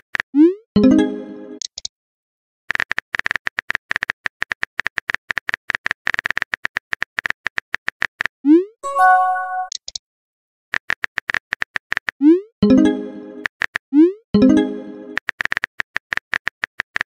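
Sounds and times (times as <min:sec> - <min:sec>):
chime: 0:08.8 - 0:09.7.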